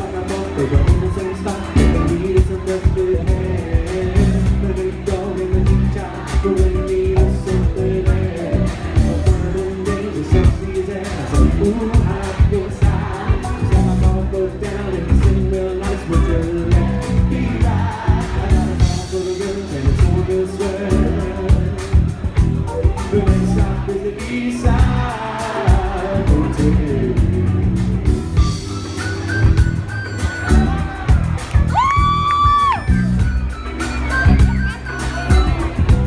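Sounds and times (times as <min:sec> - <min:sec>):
live band music with singing: 0:00.0 - 0:36.0.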